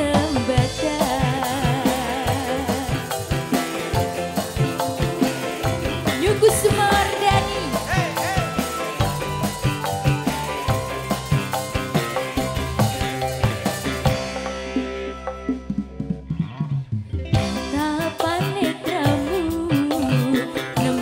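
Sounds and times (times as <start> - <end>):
woman singing: 0.0 - 3.3, 6.2 - 7.9, 17.7 - 21.0
live band with drum beat: 0.0 - 21.0.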